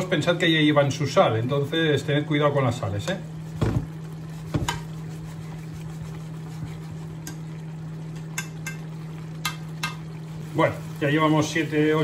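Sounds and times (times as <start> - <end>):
bubbling simmer: 0.0 - 12.0
spoon clicking against pan: 8.3 - 10.0.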